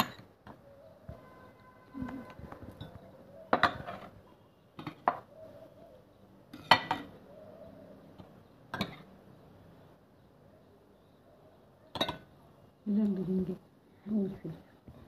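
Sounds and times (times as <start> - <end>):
metal spoon clinking on dishes: 0.0 - 0.3, 2.7 - 4.1, 6.5 - 7.1, 11.9 - 12.3.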